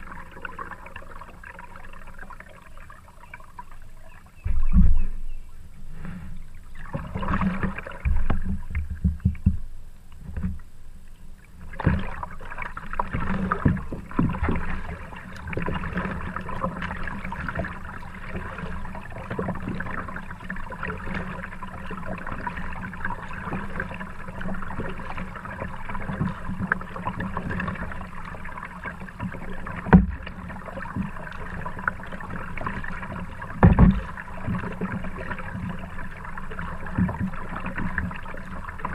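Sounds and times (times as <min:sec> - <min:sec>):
paddle strokes: 0:00.0 - 0:38.9
water washing along hull: 0:00.0 - 0:38.9
knocks on kayak: 0:29.9 - 0:30.2, 0:33.6 - 0:34.1.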